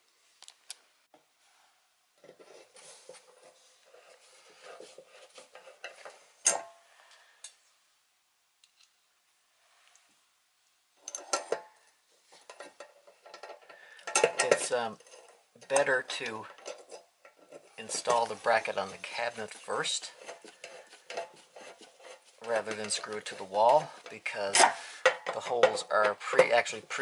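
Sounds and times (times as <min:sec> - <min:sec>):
screwdriver scraping screw turns: 0:12.4 - 0:24.7.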